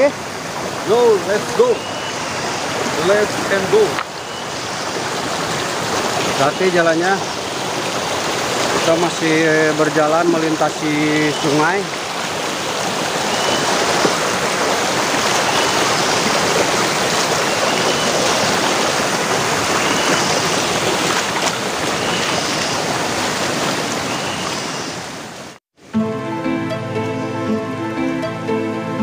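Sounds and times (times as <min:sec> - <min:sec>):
river rushing over stones: 0:00.0 - 0:25.6
soft background music: 0:25.9 - 0:29.0.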